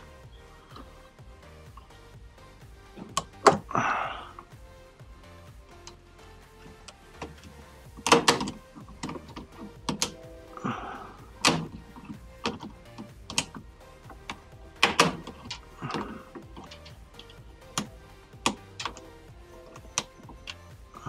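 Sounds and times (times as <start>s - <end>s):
hand tools tapping on metal: 6.6s - 21.0s.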